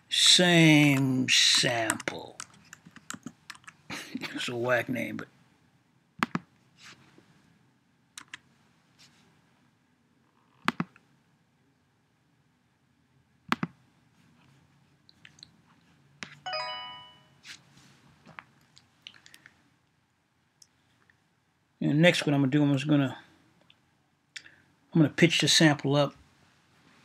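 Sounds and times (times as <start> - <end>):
keyboard and mouse clicks: 1.6 - 3.8, 6.2 - 6.5, 8.2 - 8.4, 10.6 - 11.0, 13.5 - 13.8.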